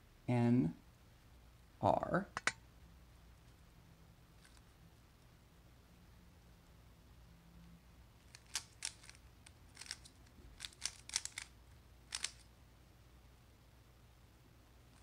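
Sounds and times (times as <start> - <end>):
puzzle cube plastic clicks: 8.2 - 12.5.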